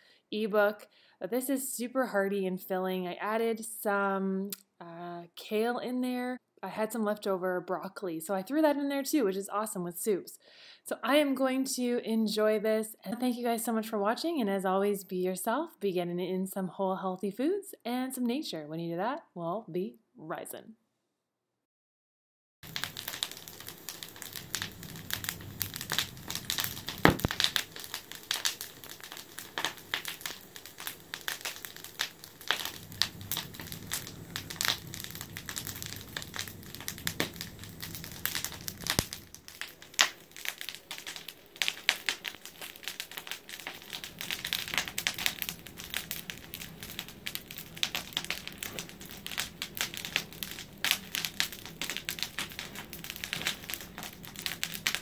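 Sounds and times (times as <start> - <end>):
wood fire crackling: 22.6 - 55.0.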